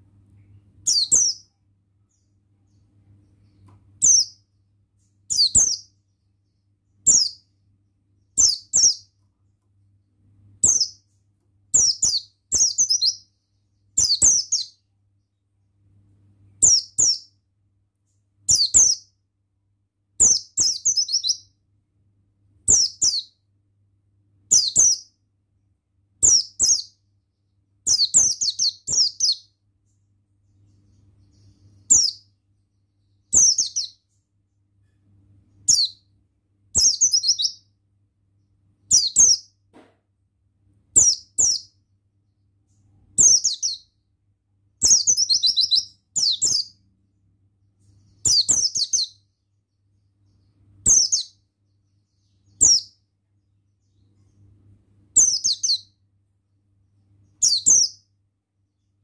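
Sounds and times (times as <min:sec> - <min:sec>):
bird twittering: 0:00.8 - 0:01.5, 0:04.0 - 0:04.4, 0:05.3 - 0:05.9, 0:10.6 - 0:11.0, 0:11.7 - 0:13.2, 0:30.9 - 0:32.3, 0:44.8 - 0:46.8, 0:48.2 - 0:49.2, 0:55.2 - 0:55.9.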